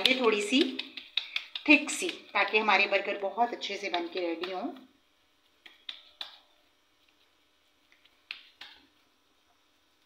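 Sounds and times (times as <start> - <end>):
hands patting minced meat: 0.0 - 9.1.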